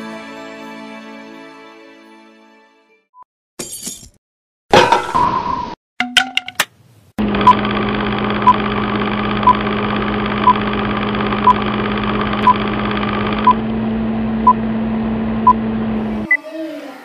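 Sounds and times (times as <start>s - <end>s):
film projector whirring: 7.2s - 16.3s.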